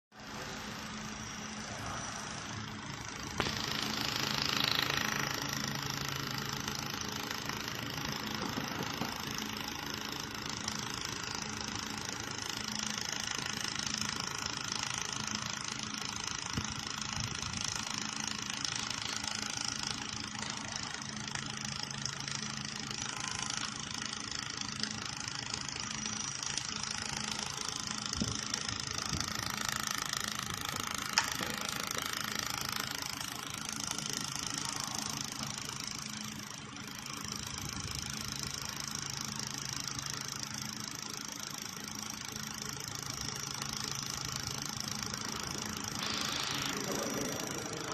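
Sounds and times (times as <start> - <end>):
welding machine humming: 0.1 - 47.9
loud hissing: 46.0 - 47.9.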